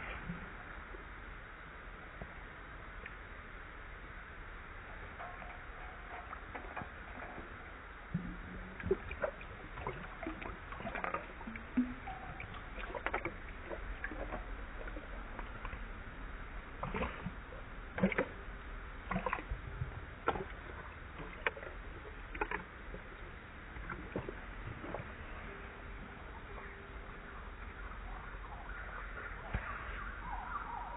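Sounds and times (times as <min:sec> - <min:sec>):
dog lapping water from metal bowl: 0:05.2 - 0:07.6, 0:08.8 - 0:15.8, 0:16.8 - 0:17.3, 0:18.0 - 0:18.4, 0:19.1 - 0:19.5, 0:20.2 - 0:22.6.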